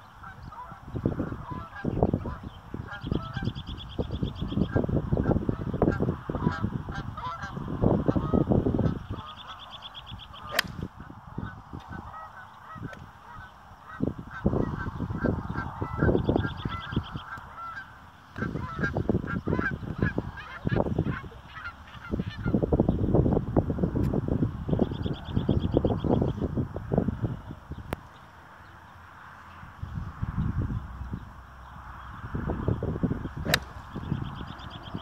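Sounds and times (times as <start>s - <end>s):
wind rumbling on microphone: 0.0s - 28.1s, 29.3s - 35.0s
geese honking: 5.9s - 9.6s, 11.4s - 22.6s
golf club striking ball: 10.5s - 10.9s, 33.4s - 34.0s.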